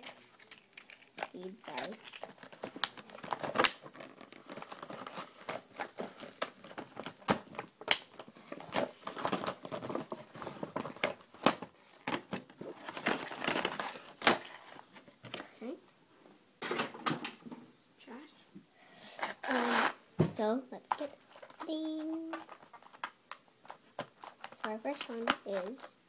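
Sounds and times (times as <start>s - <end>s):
plastic packaging crinkling: 0.0s - 15.5s, 20.9s - 26.0s.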